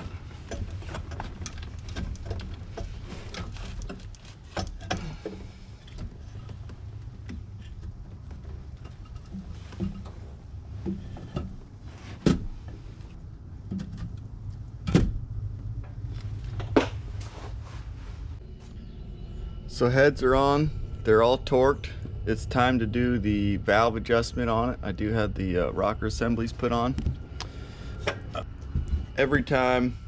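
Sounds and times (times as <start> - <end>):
low hum: 0.0 - 30.0.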